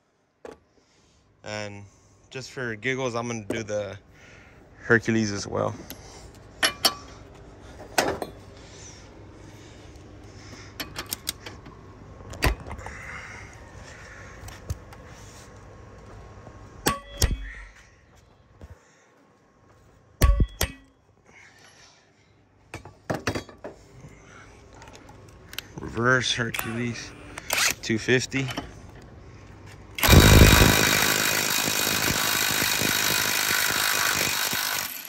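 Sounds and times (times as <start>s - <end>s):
metal tools clanking: 6.6s - 7.2s.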